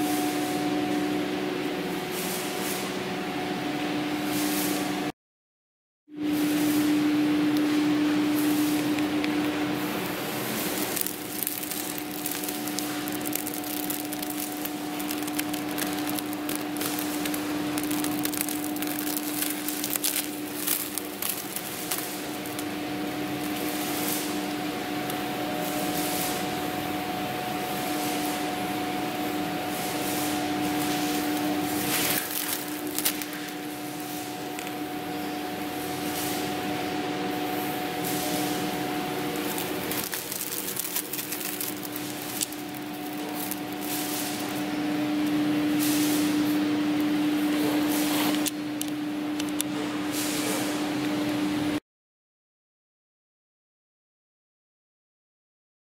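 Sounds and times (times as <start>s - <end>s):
steady machine hum: 0.0s - 5.1s, 6.1s - 51.8s
plastic wrapping crinkling: 10.0s - 25.3s, 30.8s - 34.0s, 38.1s - 44.7s.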